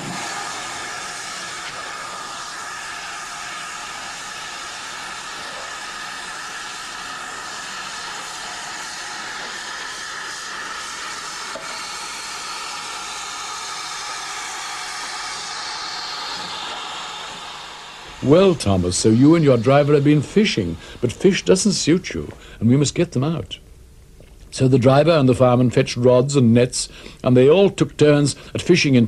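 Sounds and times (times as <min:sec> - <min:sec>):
steam hissing: 0:00.0 - 0:22.6.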